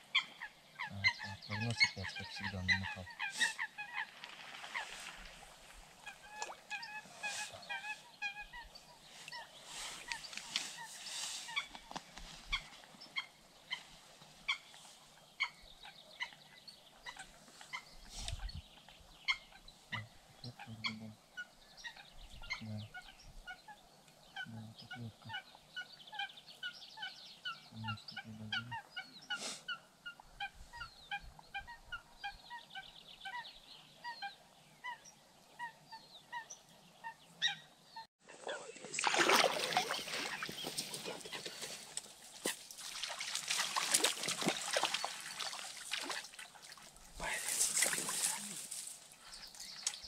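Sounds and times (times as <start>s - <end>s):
chorus of animal calls: 0.0s - 4.1s.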